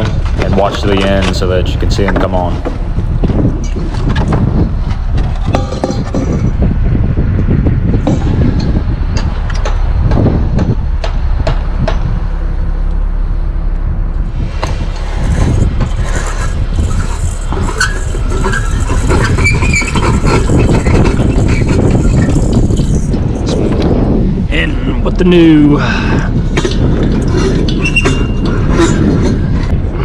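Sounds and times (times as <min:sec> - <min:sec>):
loud steady low rumble: 0:00.0 - 0:30.0
fixture and bulb rustling and clinking: 0:05.2 - 0:06.6, 0:15.2 - 0:23.6, 0:26.5 - 0:29.8.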